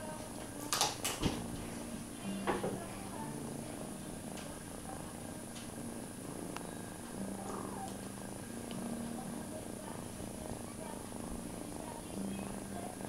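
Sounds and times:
kitten purring: 0:01.3 - 0:13.0
faint clicks: 0:06.5 - 0:09.0.

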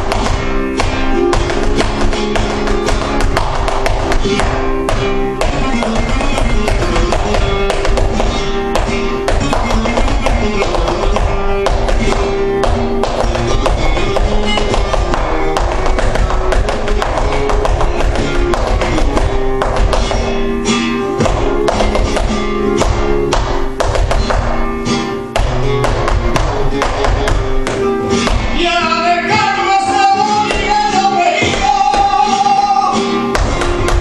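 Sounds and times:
sharp percussive taps: 0:00.0 - 0:20.4, 0:21.2 - 0:28.6, 0:33.3 - 0:34.0
acoustic guitar playing: 0:00.0 - 0:34.0
person singing: 0:27.7 - 0:34.0.

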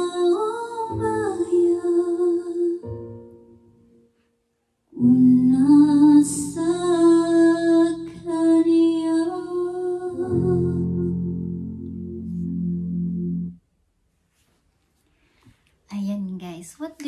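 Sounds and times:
woman singing slow ballad: 0:00.0 - 0:03.0, 0:05.0 - 0:11.6
instrumental backing track: 0:10.2 - 0:13.6.

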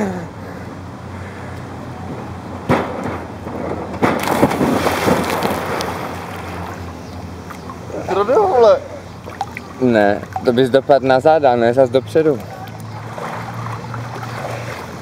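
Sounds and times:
diver splashing into pool: 0:04.0 - 0:06.5.

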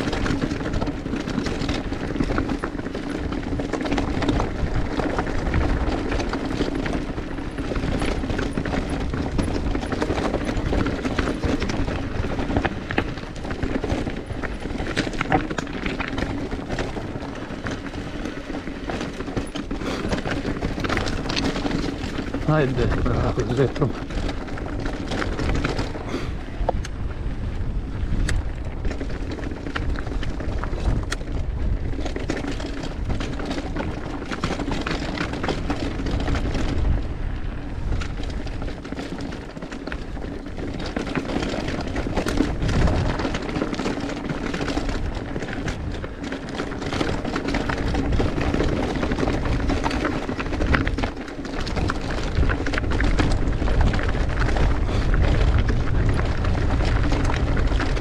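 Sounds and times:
bike rattling: 0:00.0 - 0:58.0
bike tyres rumbling over dirt: 0:00.0 - 0:58.0.

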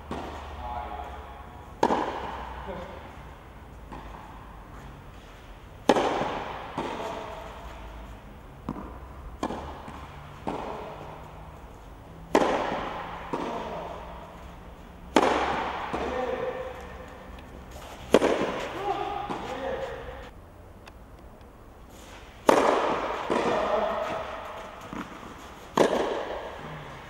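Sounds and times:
tennis ball struck by rackets: 0:00.0 - 0:00.6, 0:01.2 - 0:03.1, 0:03.9 - 0:11.4, 0:12.2 - 0:20.3, 0:22.2 - 0:26.7
ball bouncing on clay court: 0:00.0 - 0:03.1, 0:03.9 - 0:07.9, 0:08.6 - 0:11.4, 0:12.3 - 0:14.2, 0:15.0 - 0:20.3, 0:22.4 - 0:26.8.

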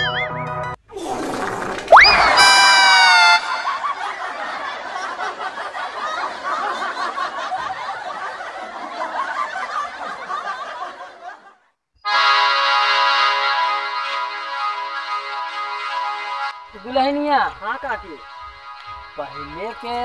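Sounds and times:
pitched sound effect ringing: 0:01.9 - 0:04.1
canned laughter: 0:02.0 - 0:11.5.

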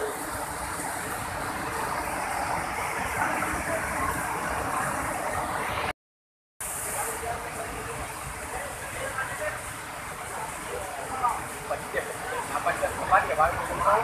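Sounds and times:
floodwater roaring over weir: 0:00.0 - 0:05.9, 0:06.6 - 0:14.0.

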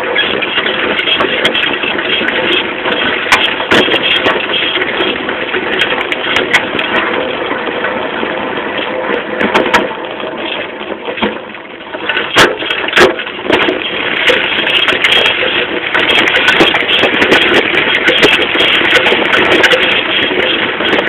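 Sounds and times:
clatter of ticks: 0:00.0 - 0:08.0, 0:08.8 - 0:21.0
moped frame rattling: 0:00.0 - 0:21.0
road and wind noise: 0:00.0 - 0:21.0.

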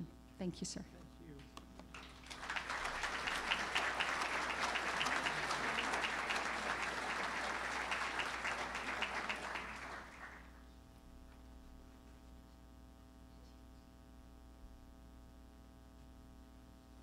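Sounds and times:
audience applauding: 0:01.9 - 0:10.6.

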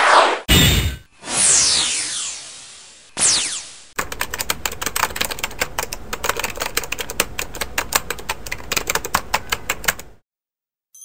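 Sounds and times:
fast keyboard typing: 0:04.0 - 0:10.2.

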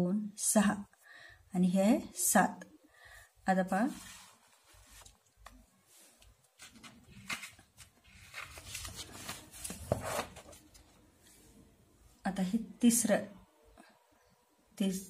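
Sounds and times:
paper book rustling and scraping: 0:03.8 - 0:11.6.

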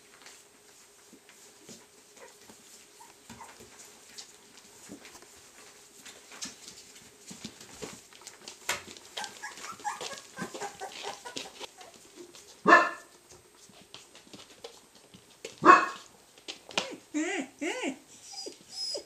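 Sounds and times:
puppies squeaking: 0:09.2 - 0:12.0, 0:17.2 - 0:19.0
dog barking: 0:12.7 - 0:13.1, 0:15.6 - 0:16.0.

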